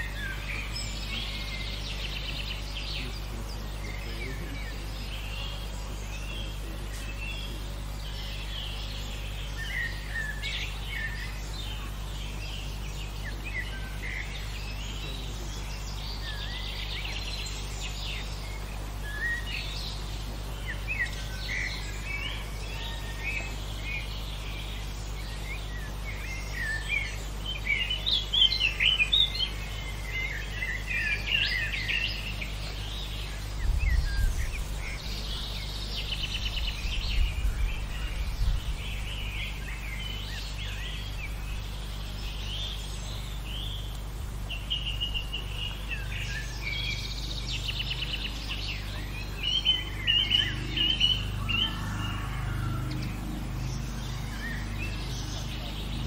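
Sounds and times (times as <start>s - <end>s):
low background rumble: 0.0s - 56.0s
songbirds singing: 0.0s - 56.0s.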